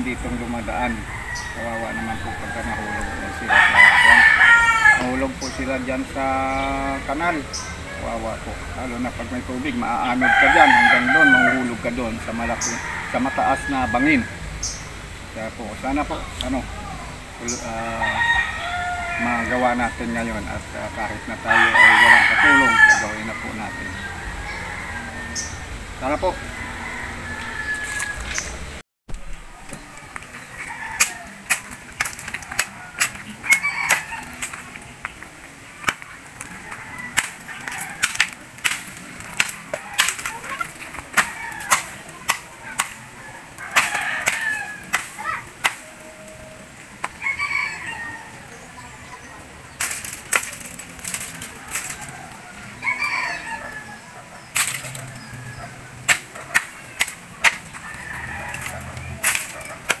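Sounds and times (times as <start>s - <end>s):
machete hacking bamboo: 37.2s - 43.0s, 43.7s - 45.9s, 56.1s - 57.7s.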